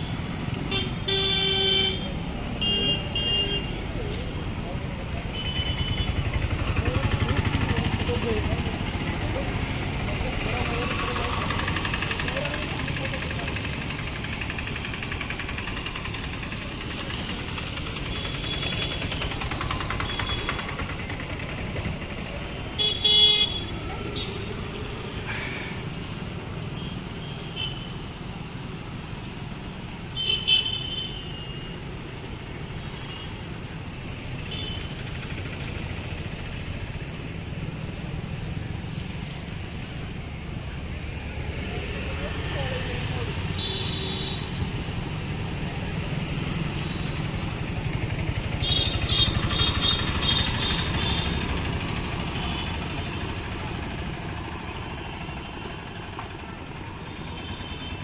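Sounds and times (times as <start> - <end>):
street traffic: 0.0 - 58.0
vehicle horns honking: 0.7 - 3.8, 22.8 - 24.4, 43.6 - 44.6, 48.6 - 51.4.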